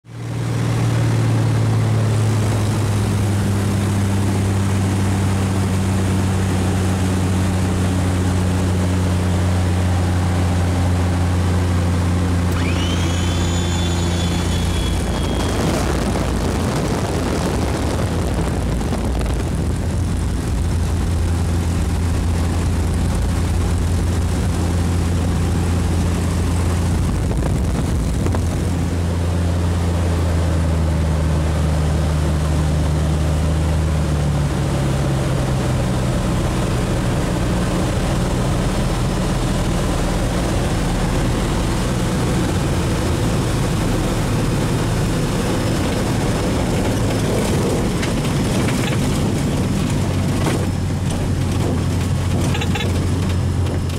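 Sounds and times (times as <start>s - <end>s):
aircraft engine and propeller droning: 0.0s - 53.9s
brief high tone: 12.5s - 15.8s.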